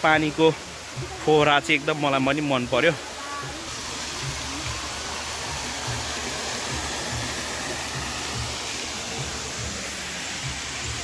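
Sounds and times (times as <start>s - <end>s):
water fountain splashing: 0.0s - 11.0s.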